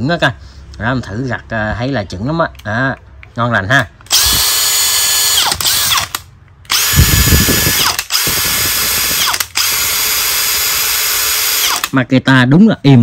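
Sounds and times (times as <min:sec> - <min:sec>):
drill spinning up and winding down: 0:04.1 - 0:11.9.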